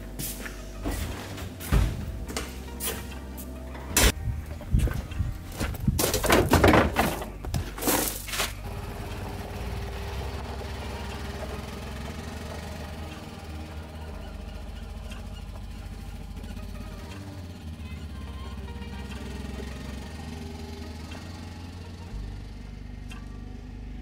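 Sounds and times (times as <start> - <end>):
vehicle engine running: 0.0 - 24.0
knocks and clatters: 3.8 - 8.6.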